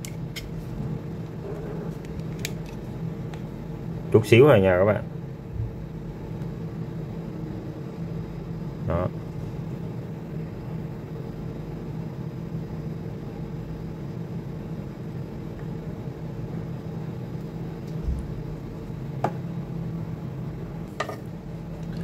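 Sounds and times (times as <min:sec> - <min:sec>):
low mechanical hum: 0:00.0 - 0:22.0.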